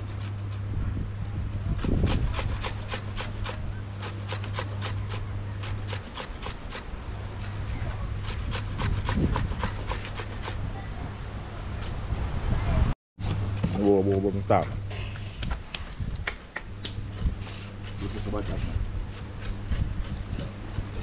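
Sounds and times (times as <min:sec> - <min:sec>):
steady low hum: 0:00.0 - 0:21.0
rhythmic hand scraping: 0:01.8 - 0:10.7, 0:16.8 - 0:21.0.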